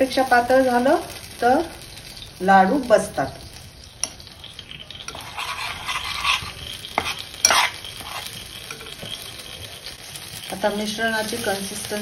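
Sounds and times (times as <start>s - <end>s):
flour sizzling in oil: 0.0s - 12.0s
spoon scraping a metal pan: 4.0s - 10.6s.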